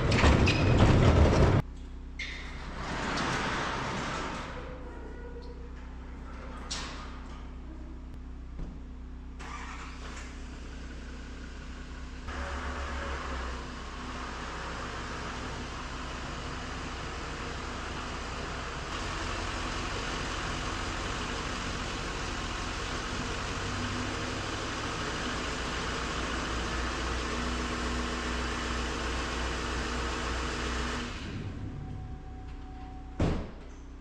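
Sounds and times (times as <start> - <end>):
diesel truck engine idling: 9.4 - 32.8.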